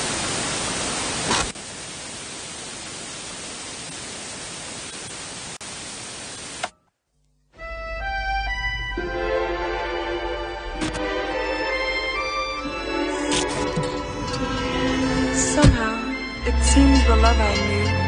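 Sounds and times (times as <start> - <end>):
tv static hiss: 0.0 - 6.8
music: 7.4 - 18.0.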